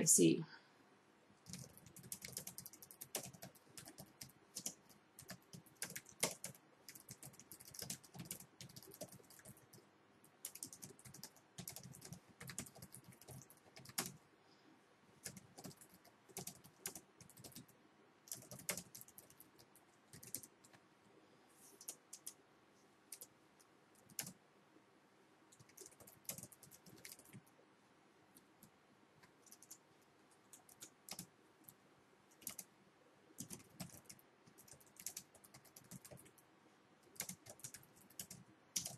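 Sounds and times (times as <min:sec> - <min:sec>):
computer keyboard typing: 0:01.4 - 0:14.2, 0:15.2 - 0:17.7, 0:18.3 - 0:20.8, 0:21.7 - 0:22.4, 0:23.1 - 0:23.3, 0:24.0 - 0:24.4, 0:25.5 - 0:27.5, 0:28.4 - 0:29.8, 0:30.4 - 0:32.7, 0:33.4 - 0:36.4, 0:37.0 - 0:38.9.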